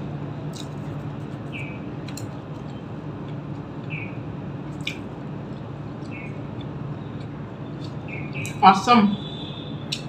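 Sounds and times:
steady low hum: 0.0s - 10.0s
chewing crunchy food: 0.4s - 8.6s
sharp mouth clicks: 0.5s - 0.8s, 4.8s - 8.6s.

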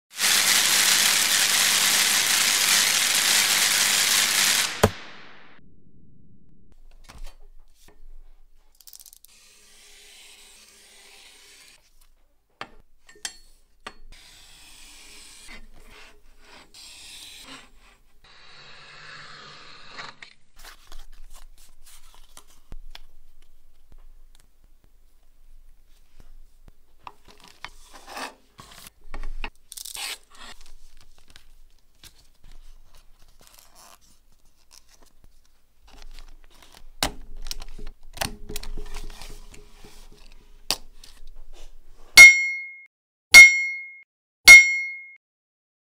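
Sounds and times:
paper and cardboard rustling: 20.6s - 22.8s, 27.2s - 41.8s.

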